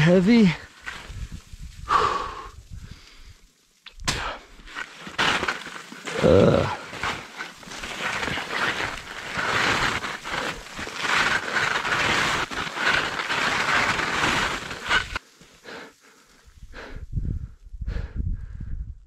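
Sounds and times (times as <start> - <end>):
skis scraping wet snow: 4.6 - 15.8.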